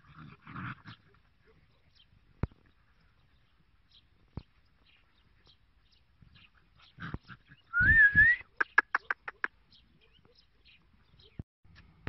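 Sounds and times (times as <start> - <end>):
puppy high yips: 7.8 - 9.5.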